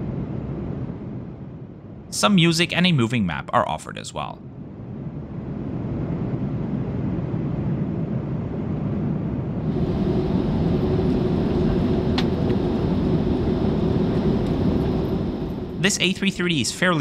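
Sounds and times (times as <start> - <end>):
steady hum: 0.0 - 17.0
airplane cabin engine rumble: 4.2 - 17.0.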